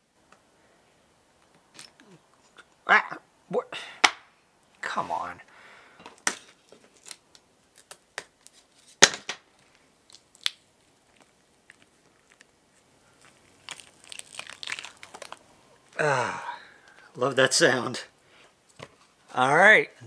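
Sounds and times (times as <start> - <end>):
mold box walls cracking: 13.2 - 15.4.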